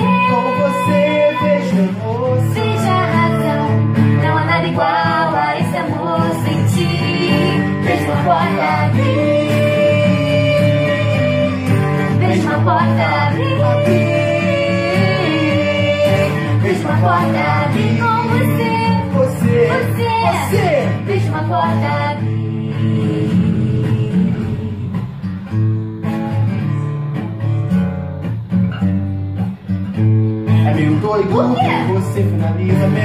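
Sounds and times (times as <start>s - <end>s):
woman singing pop duet: 0.0s - 24.8s
instrumental backing music: 0.0s - 33.0s.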